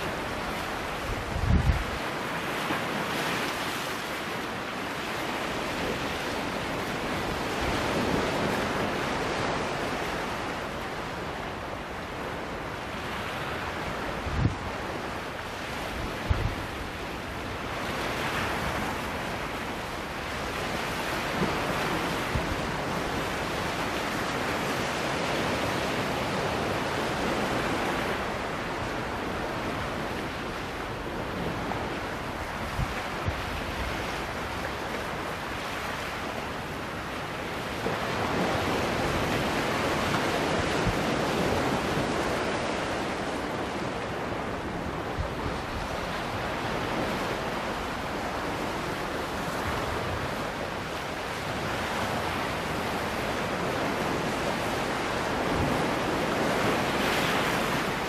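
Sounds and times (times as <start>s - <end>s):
waves washing on rocky shore: 0.0s - 58.0s
wind on microphone: 0.0s - 58.0s.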